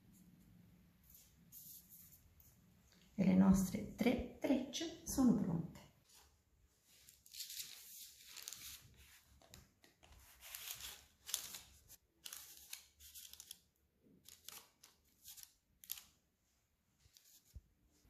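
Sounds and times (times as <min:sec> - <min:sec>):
parchment paper rustling: 0:06.0 - 0:18.0.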